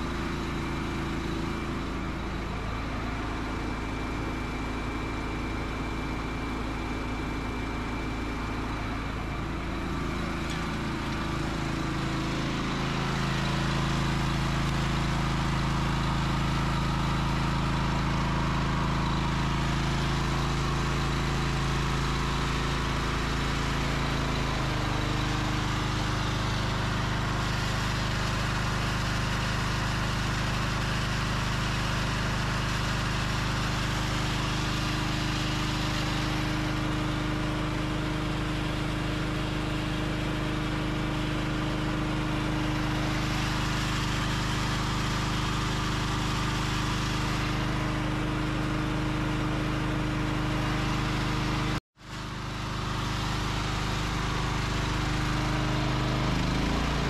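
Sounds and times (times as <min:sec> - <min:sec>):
small gas engine running: 0:00.0 - 0:57.0.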